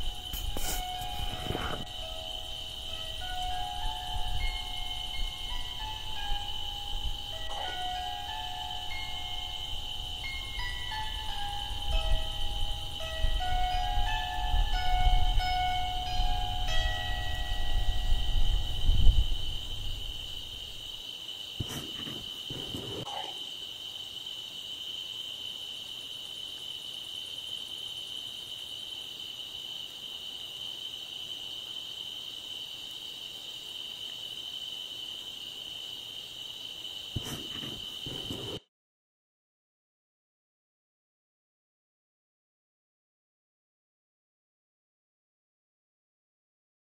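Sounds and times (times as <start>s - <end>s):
insects trilling: 0.0s - 38.6s.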